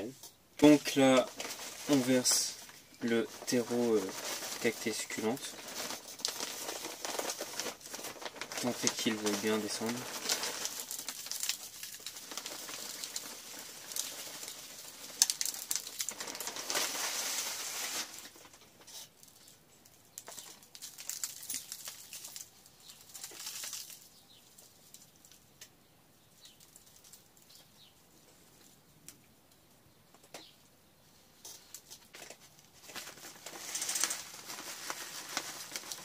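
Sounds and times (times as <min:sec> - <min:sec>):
soil pouring from crinkling bag: 0:00.6 - 0:18.6, 0:20.3 - 0:24.0, 0:32.8 - 0:36.0.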